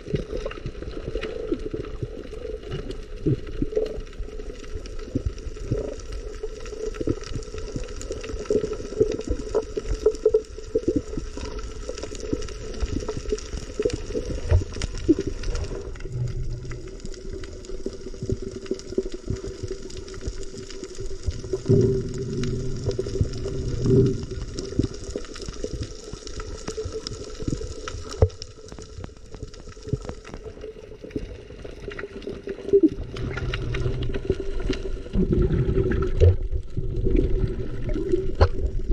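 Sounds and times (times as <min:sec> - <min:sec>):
fine crackling underwater: 0:00.0 - 0:38.9
low rumbles of moving water: 0:00.0 - 0:38.9
muffled underwater water wash: 0:00.0 - 0:38.9.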